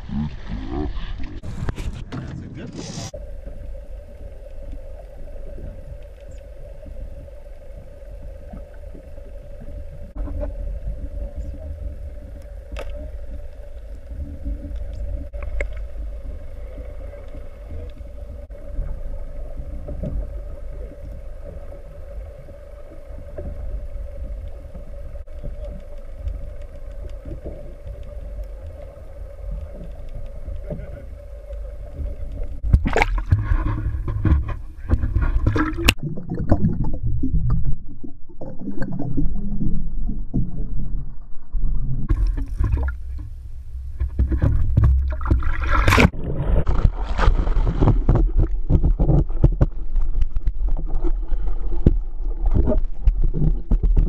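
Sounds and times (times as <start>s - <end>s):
muffled underwater rumble: 0.0s - 54.0s.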